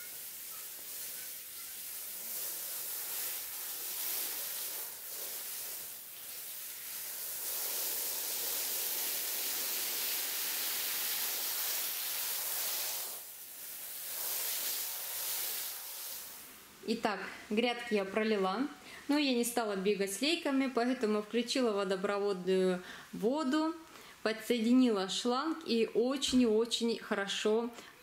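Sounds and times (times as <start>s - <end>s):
hose spraying water onto soil: 0.0s - 16.5s.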